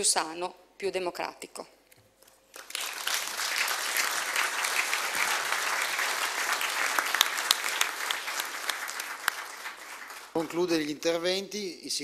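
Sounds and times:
audience applauding: 0:02.6 - 0:11.2.

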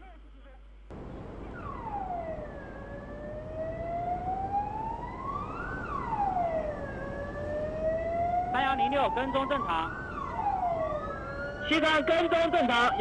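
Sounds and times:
steady rushing noise: 0:00.9 - 0:07.6
siren-like wailing tone: 0:01.2 - 0:13.0.

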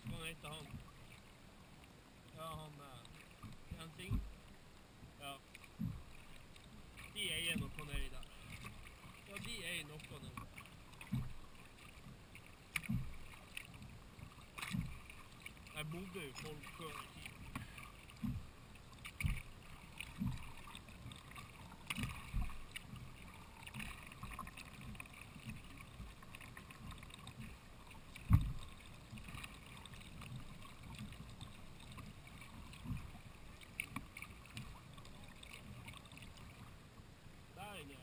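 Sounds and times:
paddle splashes and drips: 0:00.0 - 0:38.0
low thumps: 0:28.2 - 0:28.7.

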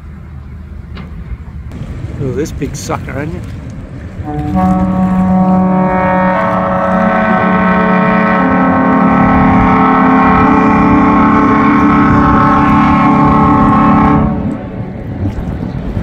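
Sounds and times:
loud steamboat horn blast: 0:04.2 - 0:14.9.

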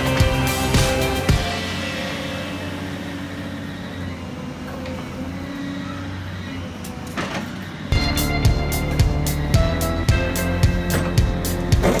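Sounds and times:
machine engine and hydraulics: 0:00.0 - 0:12.0
crusher jaw working concrete: 0:10.7 - 0:12.0.

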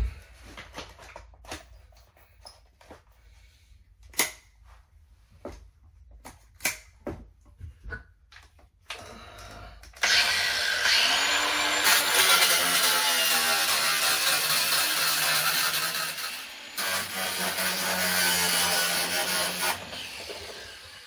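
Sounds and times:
angle grinder cutting steel: 0:10.0 - 0:21.0.

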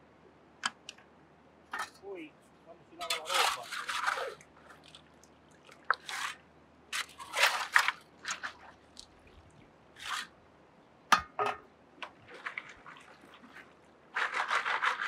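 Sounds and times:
shovel scraping into wet gravel: 0:03.0 - 0:04.9, 0:05.9 - 0:09.1, 0:10.0 - 0:10.4, 0:12.3 - 0:15.0.

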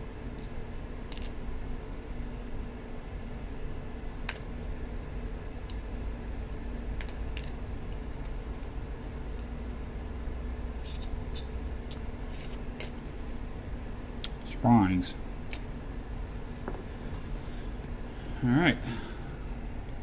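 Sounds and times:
low background hum: 0:00.0 - 0:20.0
metallic clicks of lock parts: 0:10.8 - 0:13.2.

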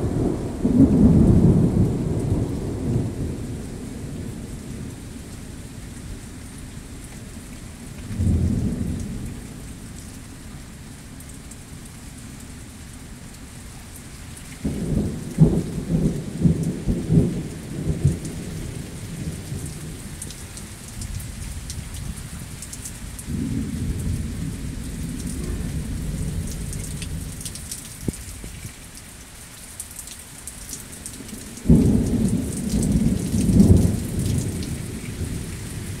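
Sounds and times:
thunder cracking and rumbling: 0:00.0 - 0:04.8, 0:08.2 - 0:09.4, 0:14.6 - 0:20.3, 0:23.1 - 0:28.6, 0:31.2 - 0:36.0
rain pattering and dripping: 0:00.0 - 0:36.0.

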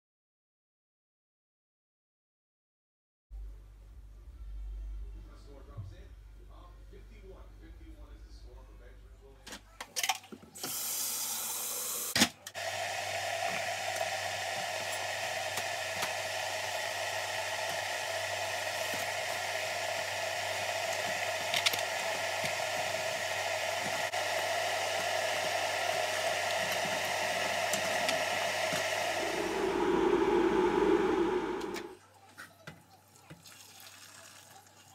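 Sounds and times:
electric kettle heating: 0:10.6 - 0:32.0.

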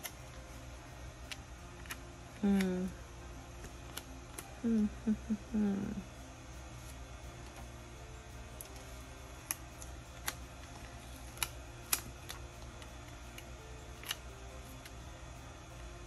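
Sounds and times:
stickers and paper pages clicking: 0:01.2 - 0:02.9, 0:03.6 - 0:04.6, 0:08.6 - 0:15.0.

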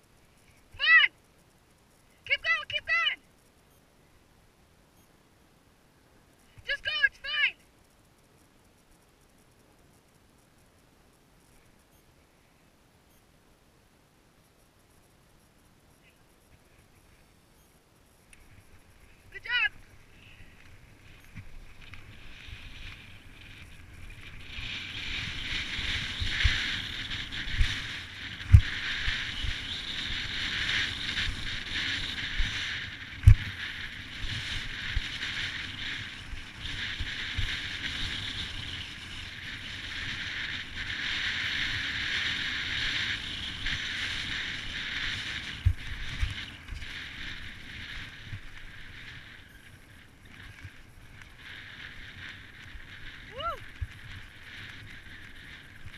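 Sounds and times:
bike tyre rushing hiss: 0:19.9 - 0:49.7.

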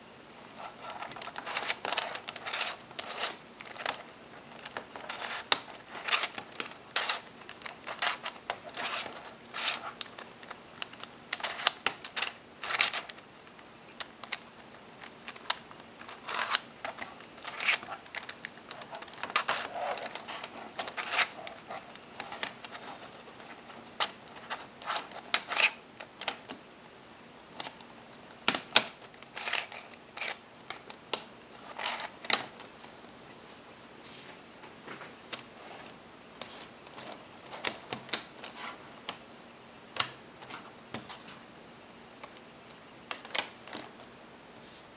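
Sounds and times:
plastic puzzle layers clacking: 0:00.6 - 0:13.2, 0:14.0 - 0:26.4, 0:28.5 - 0:31.0.

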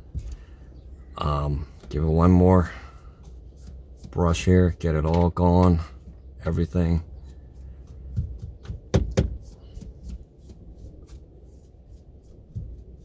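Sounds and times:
brush strokes on touchscreen: 0:01.8 - 0:04.8, 0:06.4 - 0:08.2, 0:09.4 - 0:13.0.

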